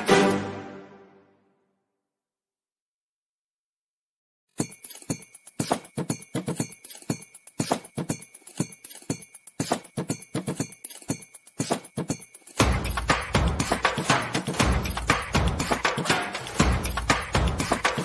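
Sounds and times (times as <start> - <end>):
background music: 0.0 - 1.6, 11.4 - 18.0
clip-clop percussion clicks: 4.6 - 18.0.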